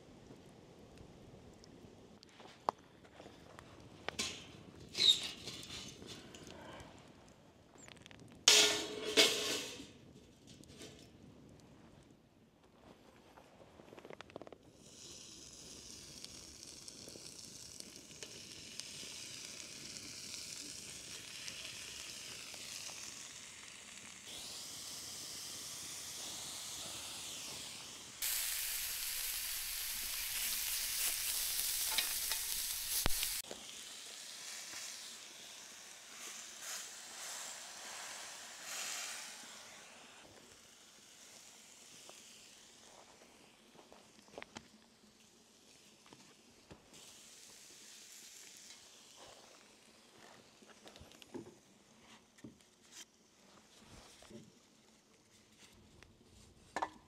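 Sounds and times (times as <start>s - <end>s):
food sizzling: 14.8s - 44.2s, 46.6s - 51.1s.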